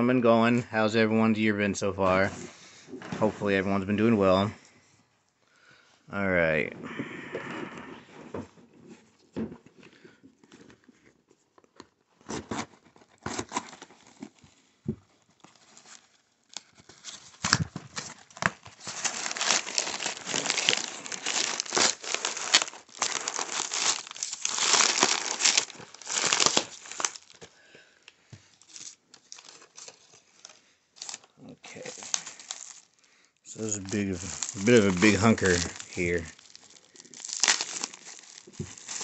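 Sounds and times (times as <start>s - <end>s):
packaging clicks and rustles: 9.6s - 39.0s
paper tearing and crinkling: 12.2s - 14.4s, 15.2s - 27.4s, 28.6s - 33.0s, 33.6s - 39.0s.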